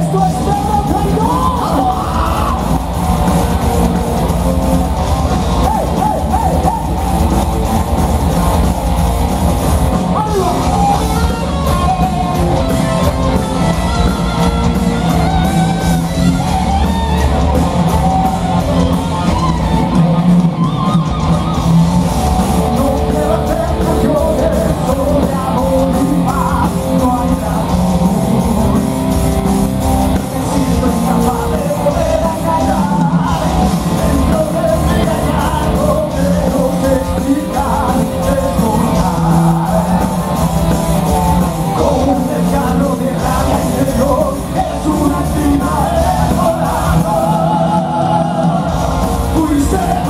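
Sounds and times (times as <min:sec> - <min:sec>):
person singing: 0:00.0 - 0:03.0, 0:22.4 - 0:29.3, 0:30.0 - 0:40.5, 0:41.3 - 0:50.0
bass guitar: 0:00.0 - 0:50.0
distorted electric guitars: 0:00.0 - 0:50.0
drums: 0:00.0 - 0:50.0.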